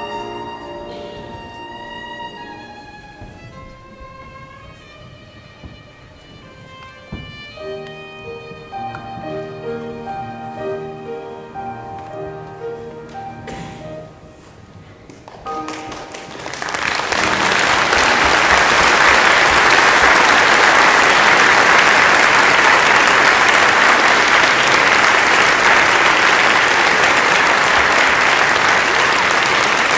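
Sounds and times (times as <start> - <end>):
violin and piano: 0.0 - 16.4, 17.1 - 21.1
audience applauding: 15.1 - 29.9.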